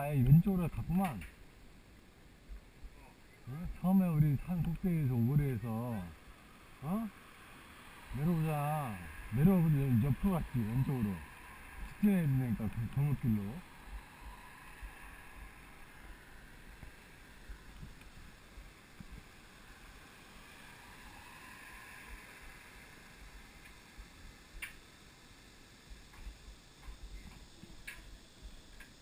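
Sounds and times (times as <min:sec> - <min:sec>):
low steady hiss: 0:00.0 - 0:29.0
sharp clicks: 0:24.6 - 0:24.8.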